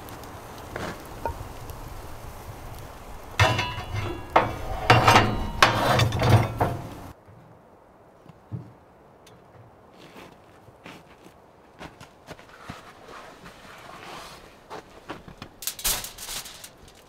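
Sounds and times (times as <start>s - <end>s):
clattering metallic knocks: 3.4s - 7.1s.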